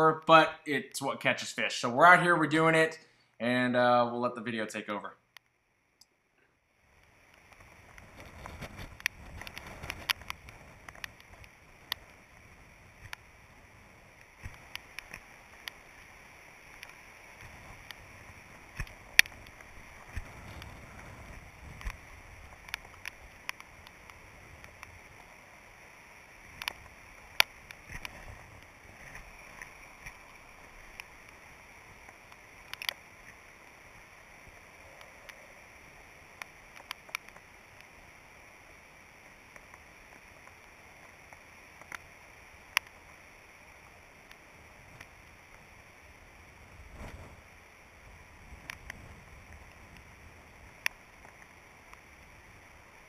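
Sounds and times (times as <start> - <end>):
faint steady hiss: 0.0 - 53.0.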